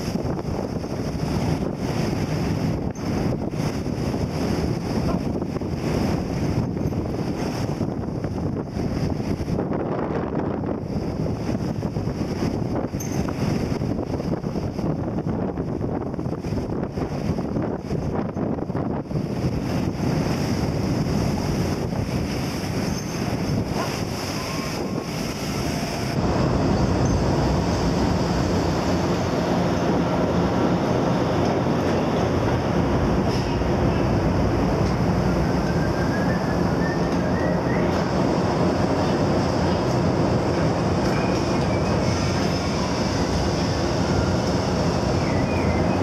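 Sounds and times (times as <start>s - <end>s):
deck machinery rumbling: 0.0s - 46.0s
sea water churning and splashing: 0.0s - 46.0s
wind buffeting microphone: 0.0s - 46.0s
faint short squeaks: 13.0s - 13.3s, 22.8s - 23.3s.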